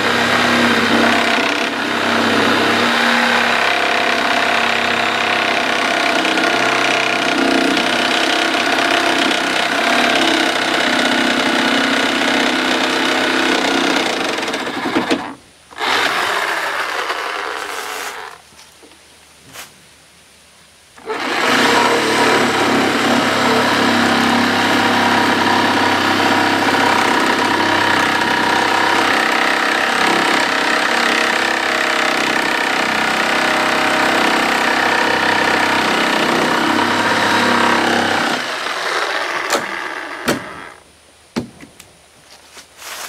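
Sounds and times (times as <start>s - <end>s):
reciprocating saw cutting wood: 0.0s - 18.4s, 21.0s - 40.8s
knocks: 39.5s - 40.6s.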